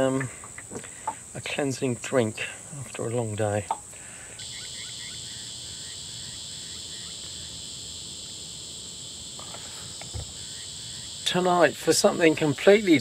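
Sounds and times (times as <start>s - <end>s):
high-pitched insect chorus: 0.0s - 13.0s
lower-pitched insect chorus: 0.0s - 13.0s.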